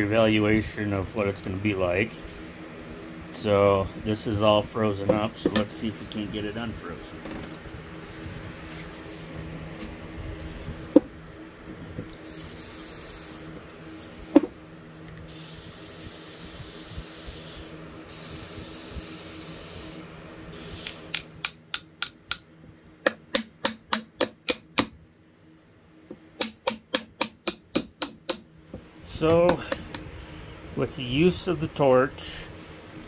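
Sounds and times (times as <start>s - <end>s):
aerosol spray hissing: 8.6s - 9.4s, 12.2s - 14.6s, 15.3s - 21.2s.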